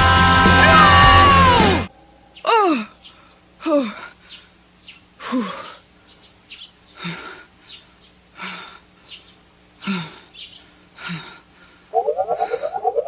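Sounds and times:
faint bird chirps: 1.9s - 3.4s, 4.2s - 7.0s, 7.6s - 8.2s, 9.0s - 9.5s, 10.3s - 10.8s, 11.9s - 13.0s.

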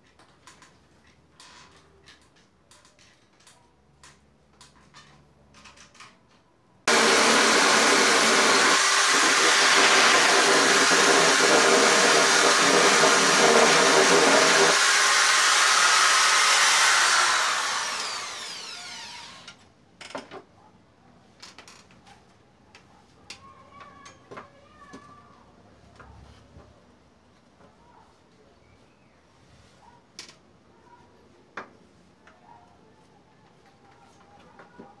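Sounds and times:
electric drill whining: 6.9s - 19.6s.

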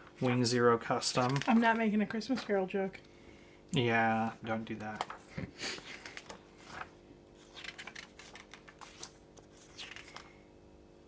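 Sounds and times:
paper pages rustling: 1.1s - 2.6s, 4.8s - 10.4s.

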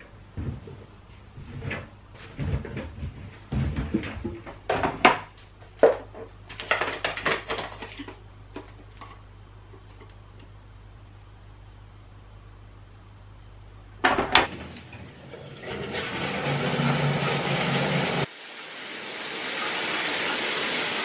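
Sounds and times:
low steady hum: 7.6s - 15.6s
washing machine door knocks and clatter: 14.0s - 14.6s.

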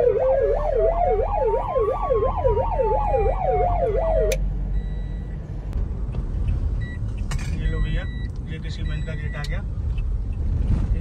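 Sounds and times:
siren wailing: 0.0s - 5.0s
rising and falling siren tone: 0.0s - 5.1s
car rumbling on road: 0.0s - 11.0s.

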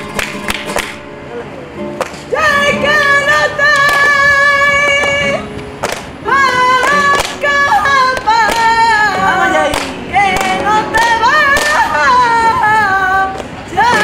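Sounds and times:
handclaps: 0.1s - 1.0s, 5.8s - 6.1s, 9.7s - 11.8s.

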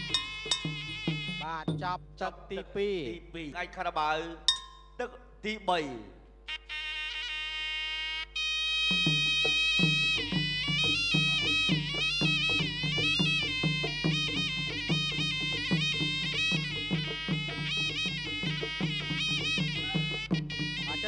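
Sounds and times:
reedy oboe melody: 0.0s - 1.7s, 6.5s - 21.0s
steady drum beat: 0.0s - 3.4s, 8.9s - 21.0s.

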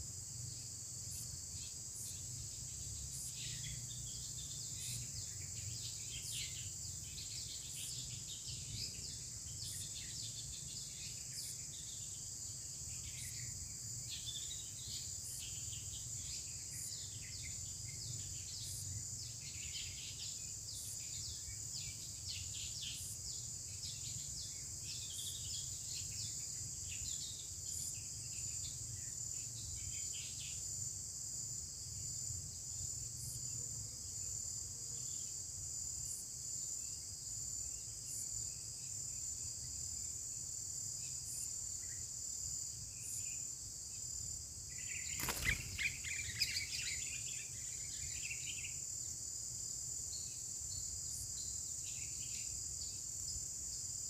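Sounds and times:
insects droning: 0.0s - 54.0s.

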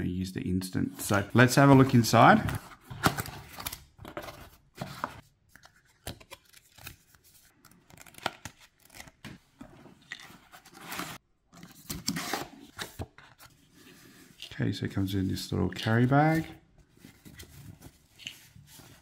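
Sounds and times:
paper rustling: 15.8s - 19.0s.

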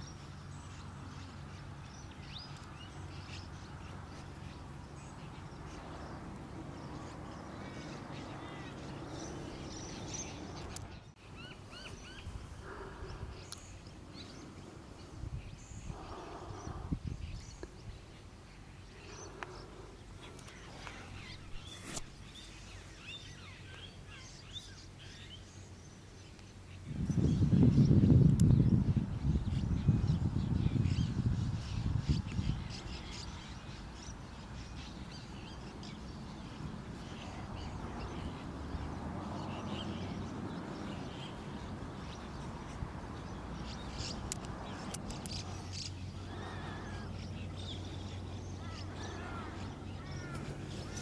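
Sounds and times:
birds chirping and twittering: 0.0s - 51.0s
high thin bird chirps: 21.0s - 22.6s.

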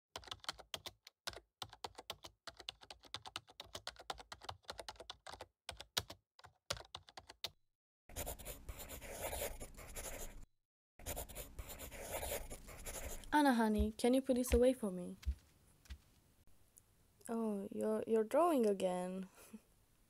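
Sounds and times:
laptop keyboard typing: 0.2s - 7.5s
pencil scratching on paper: 8.1s - 14.6s.

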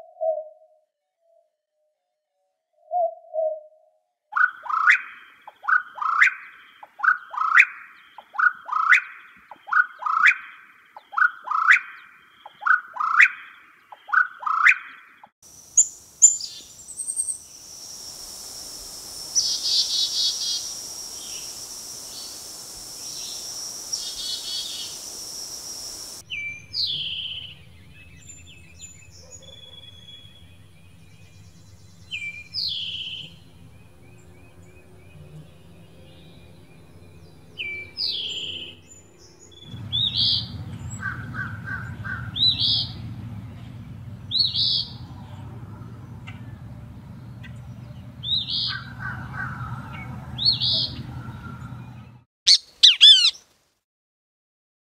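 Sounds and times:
recording hiss: 15.5s - 26.2s
chickadee calling: 15.5s - 30.6s, 48.2s - 53.4s
low hum: 24.9s - 48.3s
repeating bird call: 52.5s - 53.4s
towhee call: 52.5s - 53.4s.

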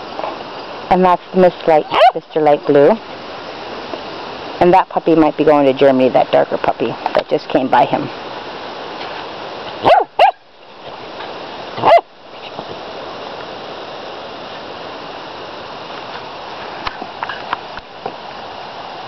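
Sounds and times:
puppy barking: 1.8s - 2.2s, 9.8s - 10.4s, 11.8s - 12.1s.

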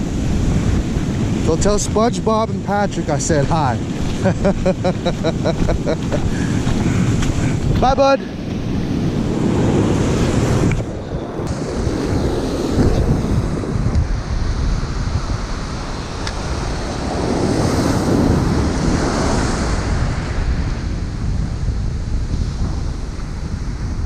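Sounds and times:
ocean surf breaking: 0.0s - 24.0s
wind buffeting microphone: 0.0s - 24.0s.

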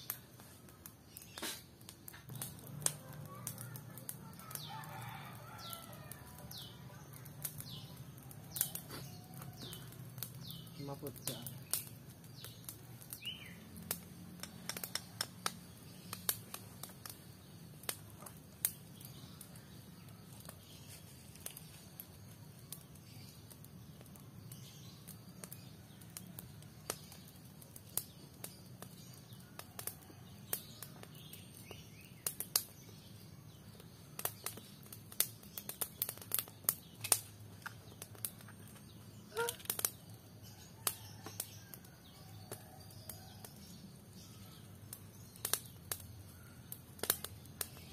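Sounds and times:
wood fire crackling: 0.0s - 47.9s
bird call: 39.3s - 39.7s.

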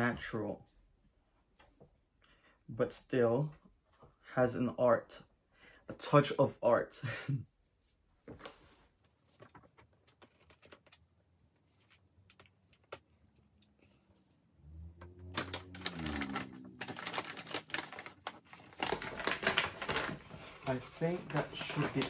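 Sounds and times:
plastic bag crinkling: 15.2s - 22.0s.

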